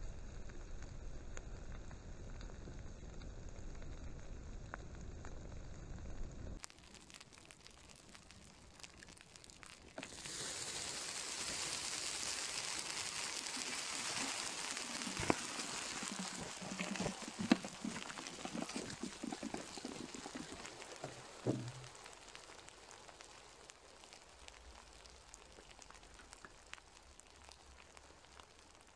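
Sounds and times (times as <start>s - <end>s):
fire crackling and popping: 0.0s - 28.9s
water hissing on fire: 6.6s - 28.9s.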